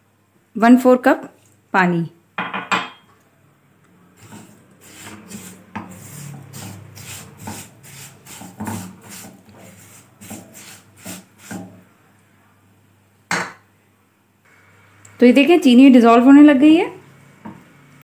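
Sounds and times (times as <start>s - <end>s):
spatula scraping sugar in a pan: 4.2s - 11.8s.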